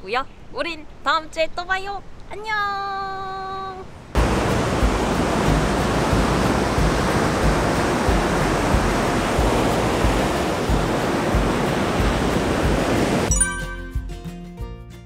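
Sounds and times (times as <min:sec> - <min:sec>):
ocean waves breaking on beach: 0:04.2 - 0:13.3.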